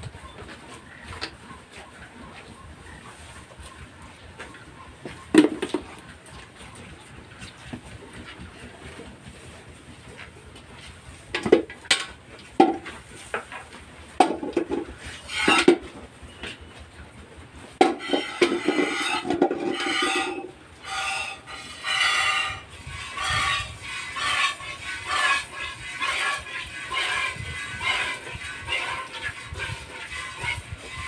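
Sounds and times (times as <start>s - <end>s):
metal pail clanking: 14.2s - 15.9s, 17.8s - 30.7s.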